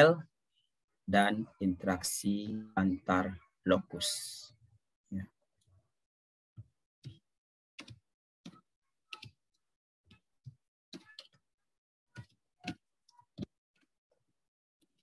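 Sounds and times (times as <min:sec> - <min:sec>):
faint clicks and taps: 0:06.6 - 0:11.5, 0:12.1 - 0:14.2.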